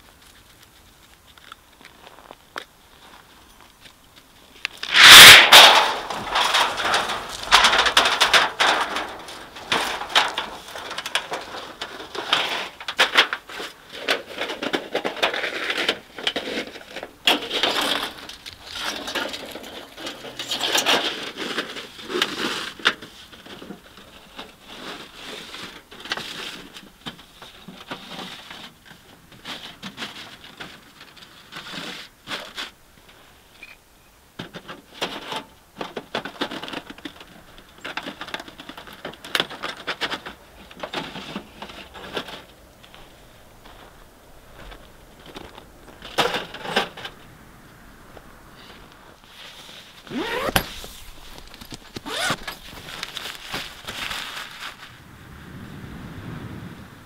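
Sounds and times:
rustling: 0.0 - 33.8, 34.4 - 55.9
metal pipe scraping: 4.8 - 13.0.

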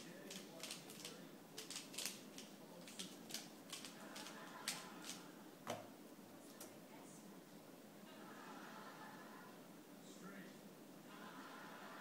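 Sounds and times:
loud cube clacks: 0.3 - 5.2.

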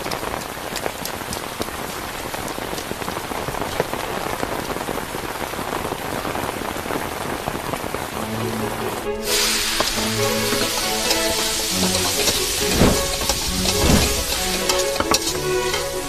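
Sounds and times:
heavy rain falling: 0.0 - 16.0
low held musical notes: 8.2 - 16.0.

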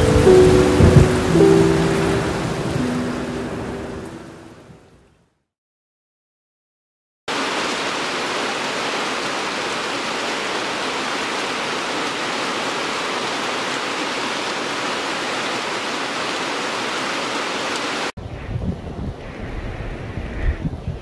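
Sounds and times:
heavy rain pouring: 0.0 - 4.8, 7.3 - 18.1.

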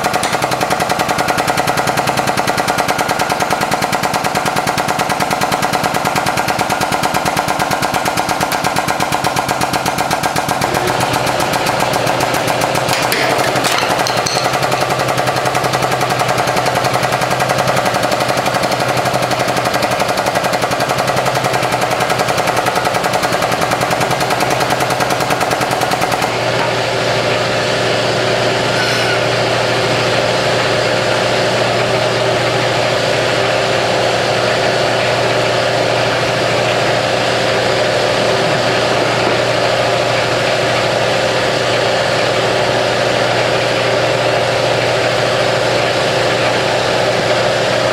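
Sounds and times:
hydraulic press pump rattling: 0.0 - 27.0
metal pieces cracking: 12.8 - 15.0.

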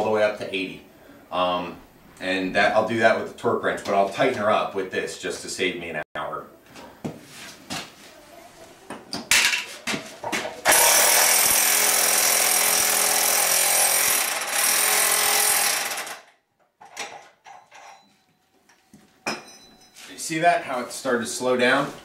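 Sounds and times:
impact wrench hammering: 10.7 - 16.2.

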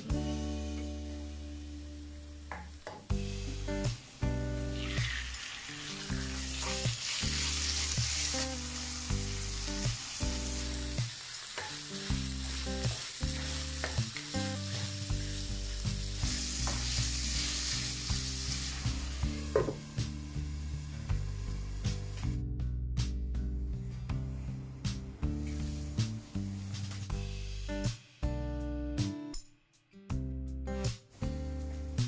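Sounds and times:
background music sustained notes: 0.0 - 29.2
chicken sizzling in oil: 3.1 - 22.2.

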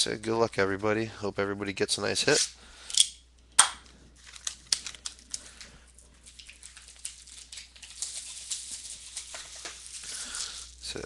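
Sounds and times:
plastic wrapper crinkling: 3.9 - 11.0.

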